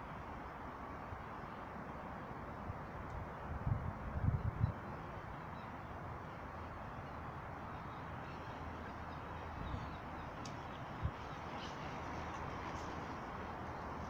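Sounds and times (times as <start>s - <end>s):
wind hissing on microphone: 3.2s - 5.3s.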